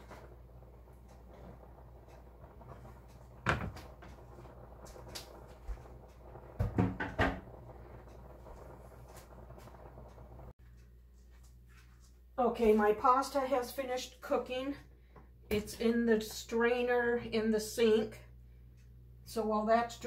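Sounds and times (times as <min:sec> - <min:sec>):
low steady hum: 0:00.0 - 0:20.0
kitchen knocks and bumps: 0:06.6 - 0:07.4.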